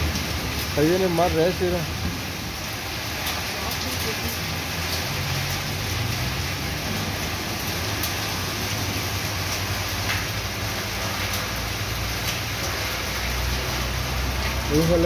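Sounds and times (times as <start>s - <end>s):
heavy rain: 0.0s - 15.0s.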